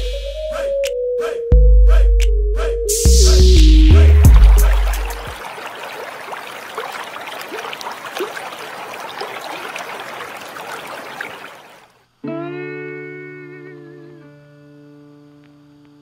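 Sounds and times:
stream rushing over stones: 4.3 - 12.0.

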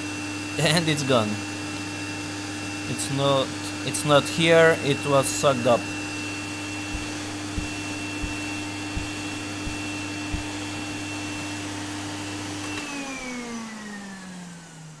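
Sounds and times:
vacuum cleaner running: 0.0 - 15.0
motor winding down whine: 6.1 - 15.0
soft low thumps: 6.8 - 11.4.

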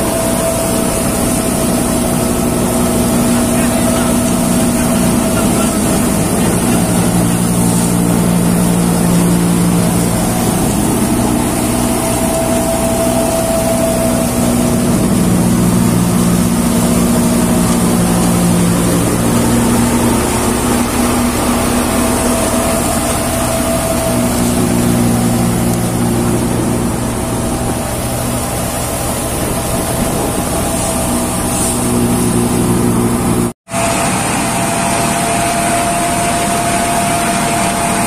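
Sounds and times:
crop thresher humming: 0.0 - 38.0.

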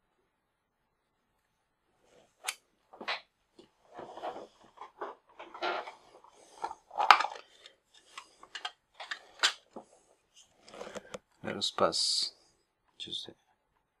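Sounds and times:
small parts clicking and tapping: 6.6 - 9.7.

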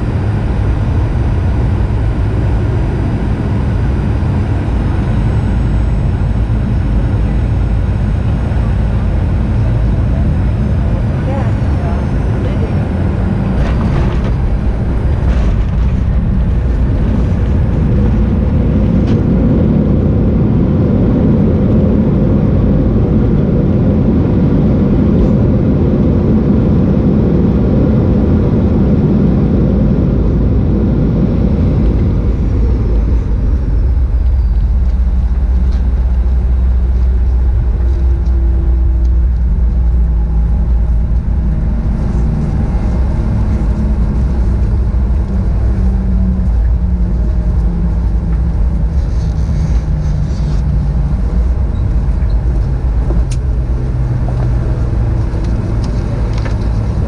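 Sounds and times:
jet engines and wheels rumbling: 0.0 - 57.0.

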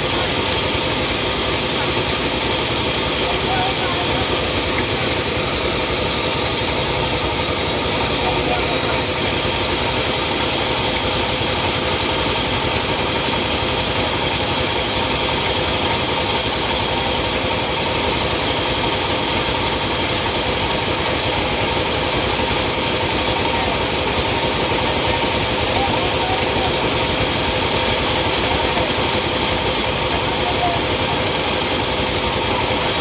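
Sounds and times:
sawmill machinery humming: 0.0 - 33.0.

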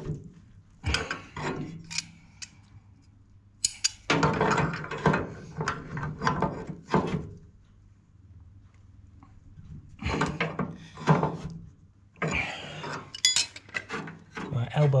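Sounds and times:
tools clattering and scraping: 0.8 - 2.6, 3.6 - 7.4, 12.2 - 14.6
metal tools clicking on fitting: 3.6 - 4.1.

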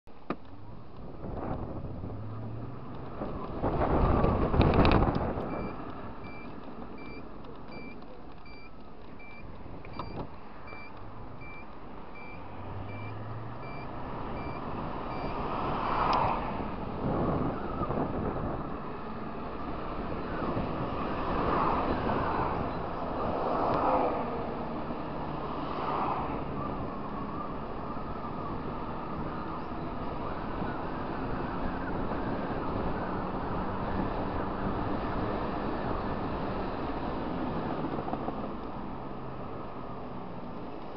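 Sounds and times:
wind rush on microphone: 0.6 - 6.4, 14.0 - 40.7
high electronic beeps: 5.5 - 15.4.

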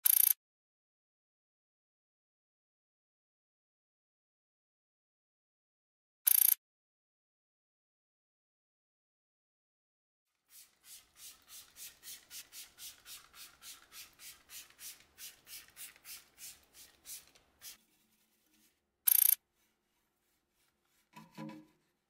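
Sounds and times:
brush scrubbing wheel: 10.4 - 18.8, 19.5 - 22.0.

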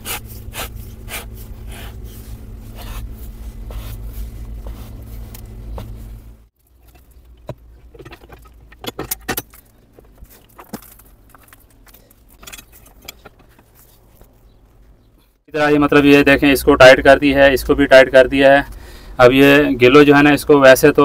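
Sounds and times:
steady low rumble: 0.0 - 13.8.

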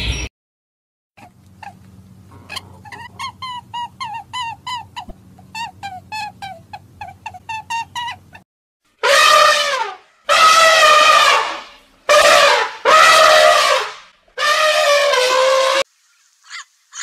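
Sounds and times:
elephant trumpeting: 1.2 - 8.3, 9.0 - 15.9
high chirping calls: 15.9 - 17.0.

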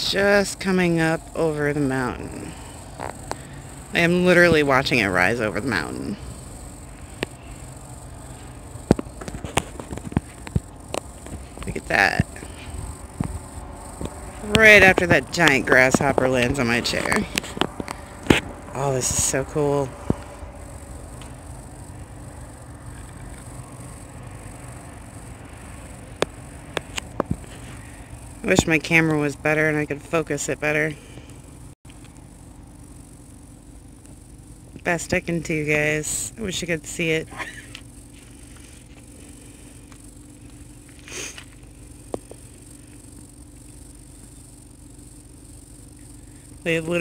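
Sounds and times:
low background rumble: 0.0 - 30.1
steady low hum: 0.0 - 47.0
sharp clicks: 6.9 - 18.6
high hiss: 40.6 - 43.0.

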